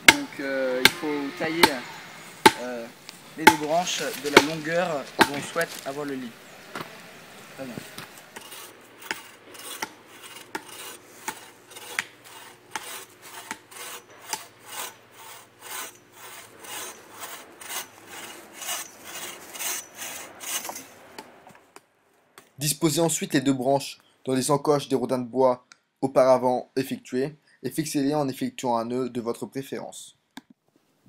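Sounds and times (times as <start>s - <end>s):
hand saw cutting wood: 0.0s - 21.3s.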